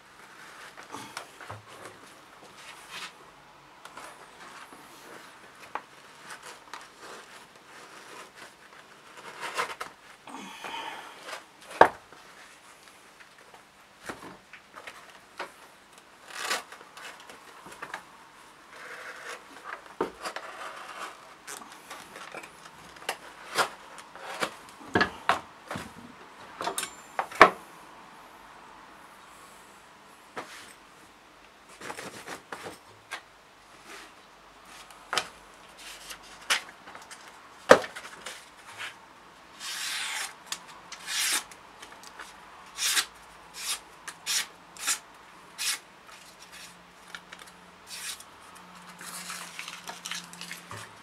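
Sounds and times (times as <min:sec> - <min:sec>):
knife scraping animal hide: 0:39.6 - 0:41.5, 0:42.7 - 0:45.0, 0:45.6 - 0:45.8, 0:47.9 - 0:48.3.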